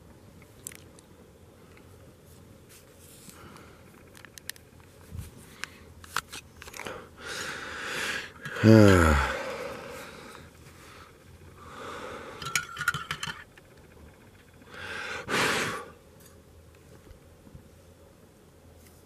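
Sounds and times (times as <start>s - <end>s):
handling crunches and clicks: 0.4s - 1.1s, 2.7s - 7.0s.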